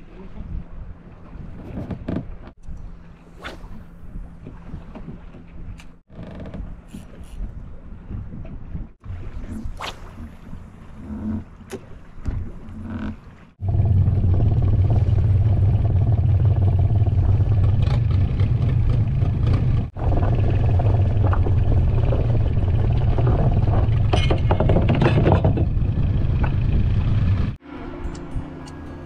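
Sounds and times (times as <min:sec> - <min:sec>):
boat engine drone: 0:12.7 - 0:29.0.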